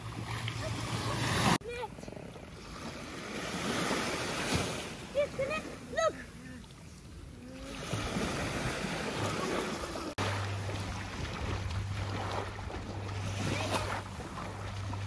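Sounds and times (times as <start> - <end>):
waves washing on shore: 0.0 - 15.0
person wading and splashing: 7.6 - 15.0
wind buffeting microphone: 7.9 - 15.0
steady low hum: 9.8 - 15.0.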